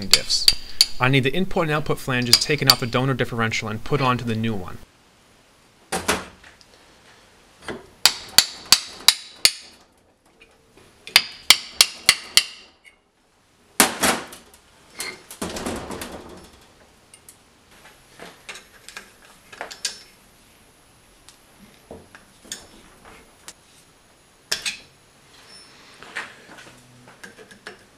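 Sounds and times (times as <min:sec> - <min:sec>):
hammer striking steel: 0:11.2 - 0:12.7.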